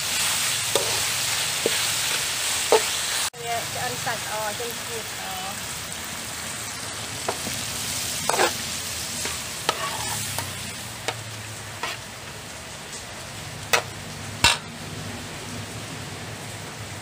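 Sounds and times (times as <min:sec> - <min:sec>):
pork sizzling in a pan: 0:00.0 - 0:17.0
metal spatula scraping a wok: 0:00.1 - 0:03.3, 0:07.3 - 0:11.2, 0:11.8 - 0:12.1.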